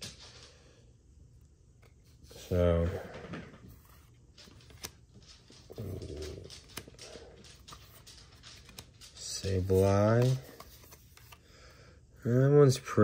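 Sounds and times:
cards slid and flicked: 3.7 - 5.7, 6.6 - 11.4.

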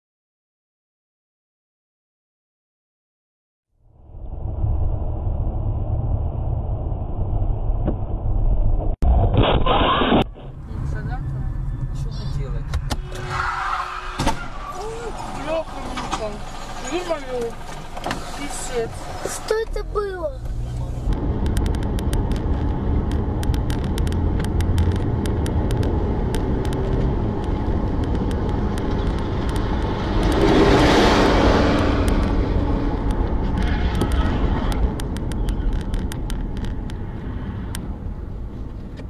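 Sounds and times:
engine and tyre road noise: 3.7 - 39.0
rush of passing truck: 29.8 - 34.8.

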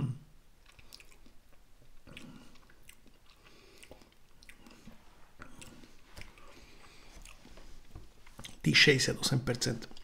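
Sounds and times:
wet mouth clicks and lip smacks: 0.6 - 6.5.

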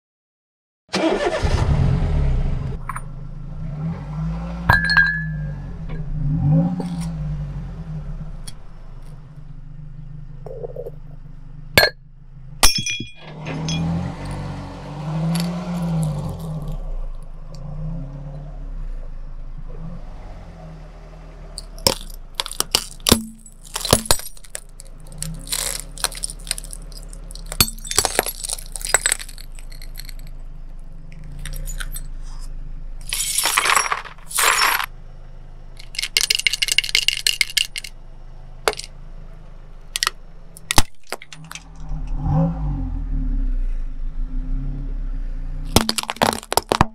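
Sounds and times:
car engine running: 1.2 - 46.9
brittle cups cracking and snapping: 15.3 - 16.8, 21.6 - 30.3, 35.8 - 37.9, 45.8 - 46.9
ceramic cup cracking: 21.6 - 30.3.

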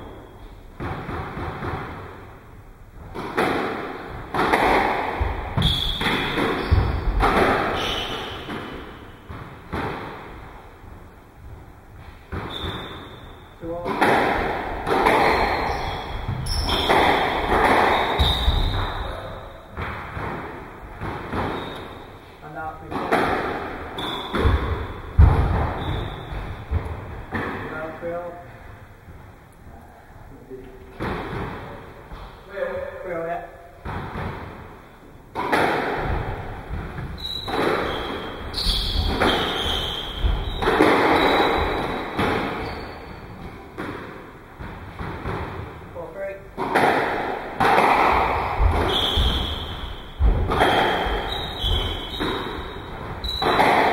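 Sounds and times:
squash ball hits: 0.8 - 2.4, 3.0 - 10.5, 12.0 - 28.2, 30.9 - 32.9, 33.8 - 45.9, 46.6 - 53.9
shoes squeaking on wooden floor: 4.4 - 9.4, 12.0 - 13.6, 14.8 - 20.2, 21.0 - 22.3, 23.8 - 27.1, 36.1 - 43.8, 48.3 - 53.9.

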